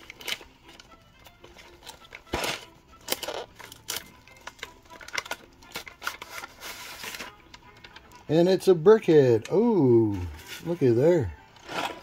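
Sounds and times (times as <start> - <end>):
foil gift wrap crinkling: 0.0 - 8.1.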